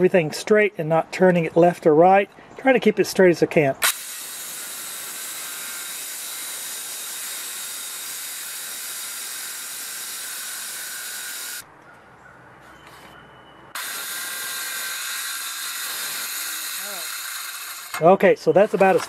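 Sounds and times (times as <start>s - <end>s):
cordless saw cutting wood: 3.8s - 11.6s, 13.8s - 18.1s.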